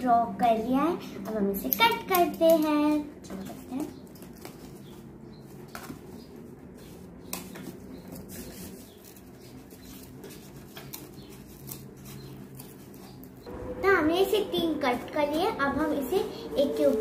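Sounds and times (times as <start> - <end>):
cardboard sheet rustling: 2.8 - 13.5.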